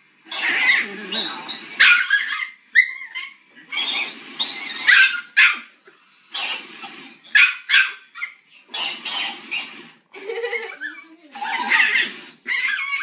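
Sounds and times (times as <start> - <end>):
puppy barking and yipping: 1.5 - 4.0, 4.6 - 5.7, 7.3 - 9.7.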